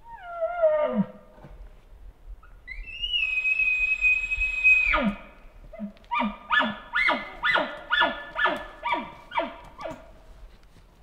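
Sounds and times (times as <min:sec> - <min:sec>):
elk bugle whistled scream: 0:02.7 - 0:05.2.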